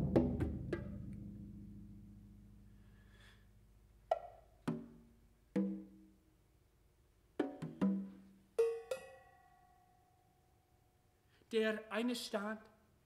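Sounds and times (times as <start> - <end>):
congas struck by hand: 0.0 - 2.0, 4.1 - 6.0, 7.4 - 9.3
metal percussion ringing: 8.6 - 10.2.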